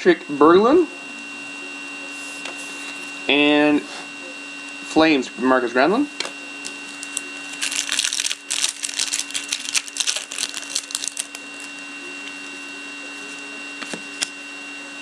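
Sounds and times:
card pack wrapper crackling: 6.7 - 11.7.

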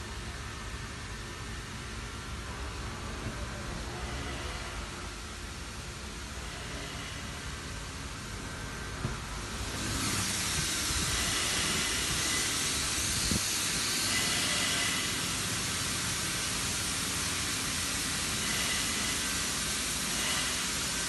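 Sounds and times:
air rushing hiss: 9.2 - 21.0.

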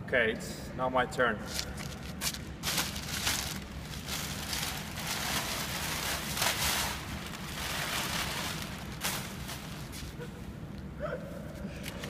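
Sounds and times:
plastic bag rustling: 1.5 - 10.4.

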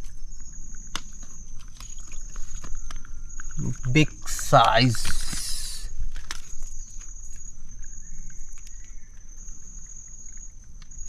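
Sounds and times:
faint scattered clicks: 0.0 - 7.5
high thin whine: 3.6 - 5.9.

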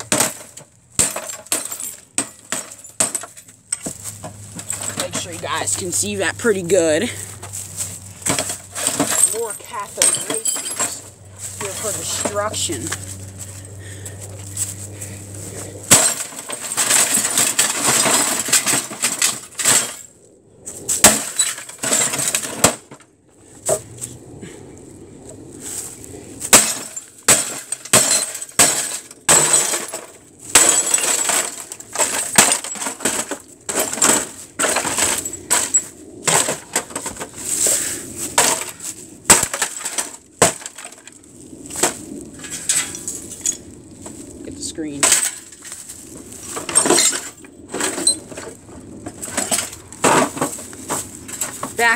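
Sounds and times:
television being smashed: 0.0 - 3.4, 8.2 - 11.0, 15.9 - 20.1, 21.0 - 23.0, 26.5 - 37.4, 38.4 - 41.1, 46.5 - 51.9
broken glass clinking: 8.3 - 12.8, 26.6 - 36.8.

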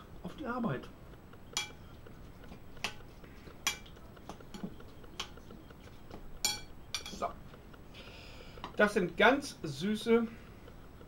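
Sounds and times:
spoon clinking against glass bowl: 6.4 - 7.2.

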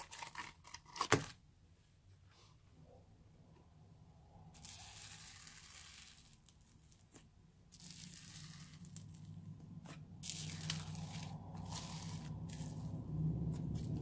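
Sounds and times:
slime crackling: 4.6 - 14.0.

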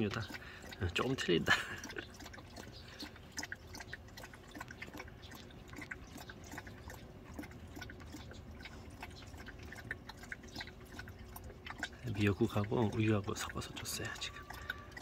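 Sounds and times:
dog lapping liquid: 0.0 - 15.0.

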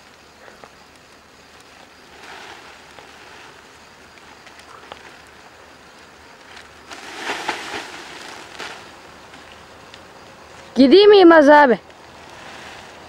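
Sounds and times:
plastic sack rustling and crackling: 1.6 - 9.9, 12.1 - 13.0.

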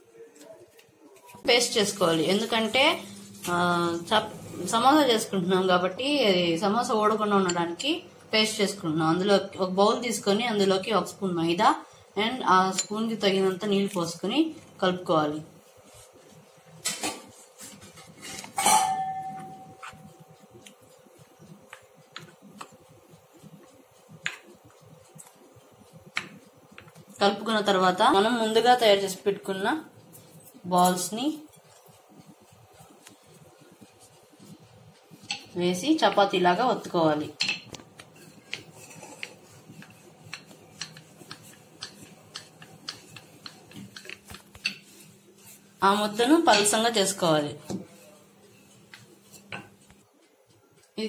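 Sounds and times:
rolling pin rolling dough: 0.3 - 51.0
ringing knock on bowl: 18.6 - 19.9.

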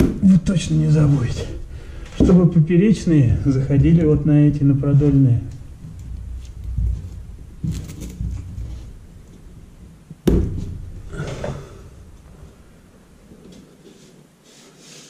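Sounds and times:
low rumble of handling noise: 0.0 - 14.3
scraping and rustling: 0.5 - 15.0
sharp knock: 10.2 - 11.0.

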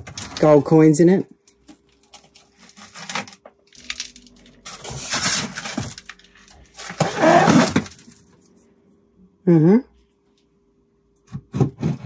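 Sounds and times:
objects clattering and scraping: 0.0 - 0.7, 1.6 - 8.6, 11.3 - 12.0.

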